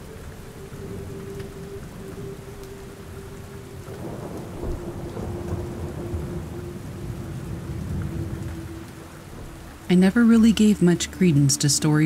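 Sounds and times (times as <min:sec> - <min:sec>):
steady rain: 0:00.0 - 0:12.0
thunder rumbling: 0:00.0 - 0:12.0.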